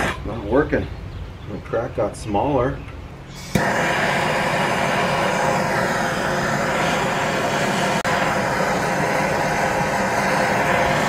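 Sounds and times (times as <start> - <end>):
gas torch hissing: 0.0 - 0.4, 3.3 - 11.0.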